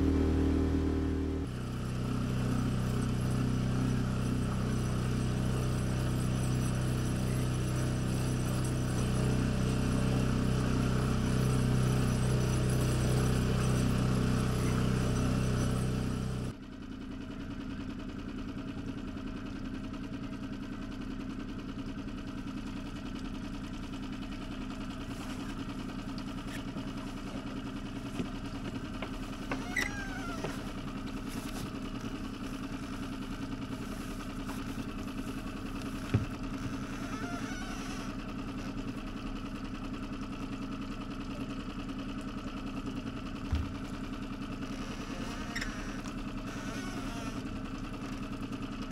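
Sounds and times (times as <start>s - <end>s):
deep hum: 0.0s - 1.5s
boat motor running: 0.0s - 16.5s, 22.4s - 48.9s.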